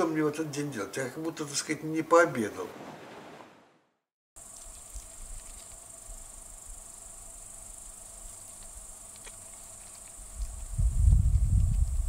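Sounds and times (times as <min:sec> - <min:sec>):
insects chirring: 0:04.4 - 0:12.0.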